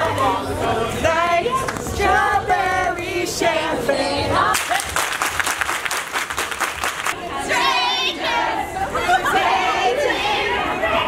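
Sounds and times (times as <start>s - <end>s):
crowd singing along: 0.0s - 4.6s, 7.1s - 11.0s
people clapping: 4.5s - 7.2s.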